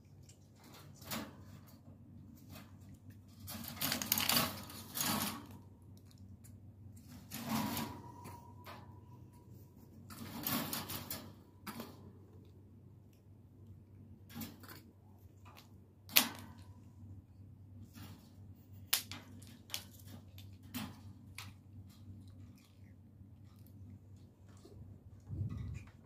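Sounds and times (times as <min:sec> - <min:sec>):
wire cage rattling: 0:00.5 - 0:05.8, 0:07.1 - 0:09.1, 0:10.1 - 0:12.1, 0:19.1 - 0:22.5.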